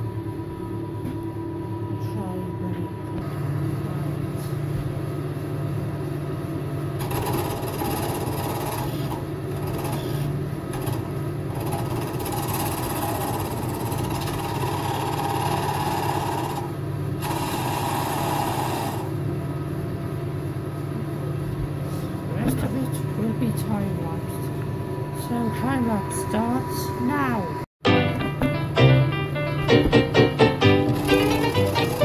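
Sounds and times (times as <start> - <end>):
lathe motor humming: 30.9 - 32.0.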